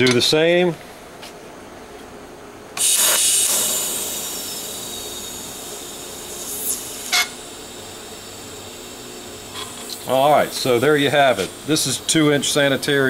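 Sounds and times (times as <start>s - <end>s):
welding torch hissing: 2.8s - 13.0s.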